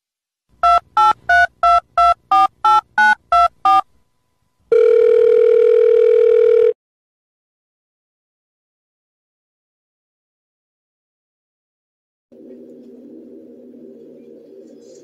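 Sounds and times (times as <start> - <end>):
telephone keypad beeps: 0.6 - 3.8, 4.7 - 6.8
steady telephone tone: 0.6 - 3.9, 4.7 - 6.8.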